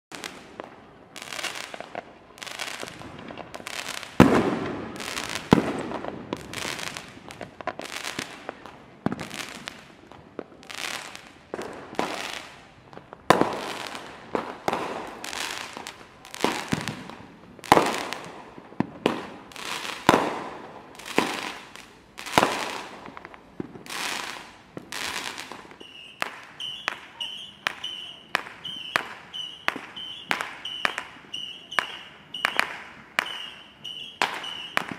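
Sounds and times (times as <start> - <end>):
fireworks banging and popping: 0.1 - 34.9.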